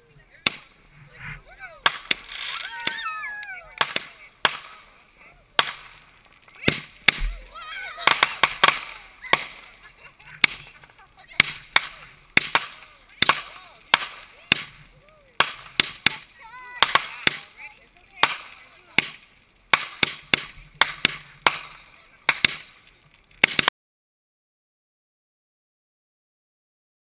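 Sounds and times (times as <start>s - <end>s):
fireworks popping: 0.0s - 23.7s.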